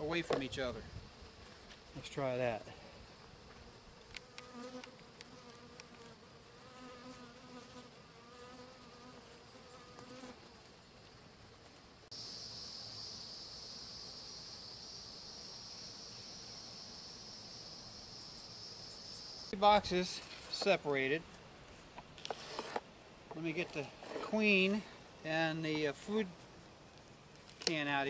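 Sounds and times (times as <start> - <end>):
honeybees buzzing: 1.0 - 19.5
high-pitched insect chorus: 12.1 - 19.6.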